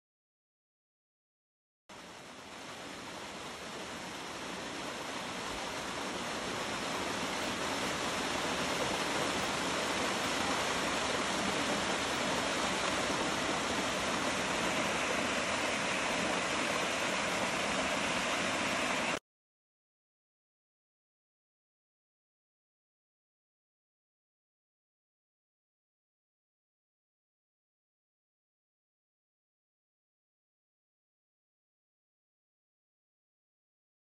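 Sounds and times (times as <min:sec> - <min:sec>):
waterfall pouring over rocks: 0:01.9 - 0:19.2.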